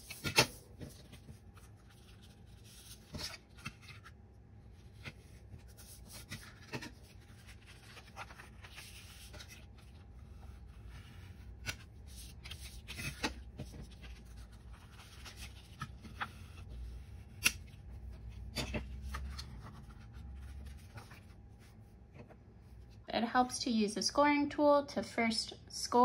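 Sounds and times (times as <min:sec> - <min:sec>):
rustling card: 0:00.0 - 0:21.9.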